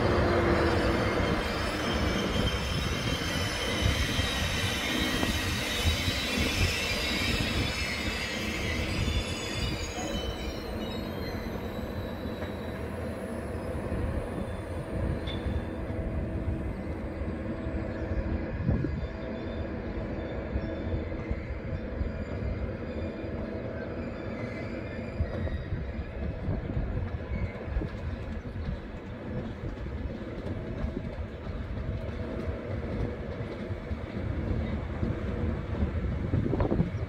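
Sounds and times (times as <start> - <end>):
train wheels rumbling on rails: 0.0 - 37.0
high-pitched wheel squeal: 0.5 - 12.8.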